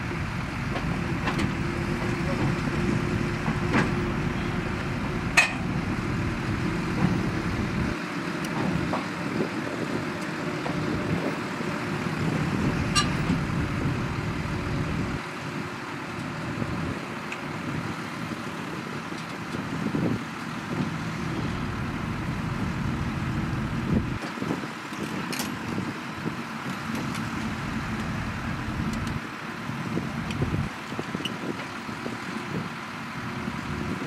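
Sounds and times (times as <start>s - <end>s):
bulldozer diesel engine rumbling: 0.0s - 34.0s
sharp metallic clank: 13.0s - 13.3s.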